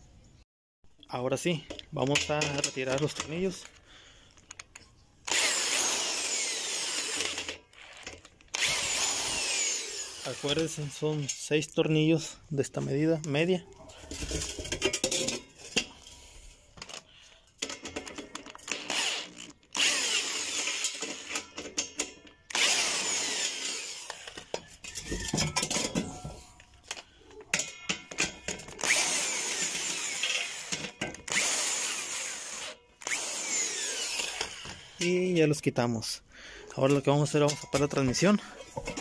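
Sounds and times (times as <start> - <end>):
power drill backing out bolts: 5.3 - 11.5, 17.7 - 27.1, 28.0 - 35.4.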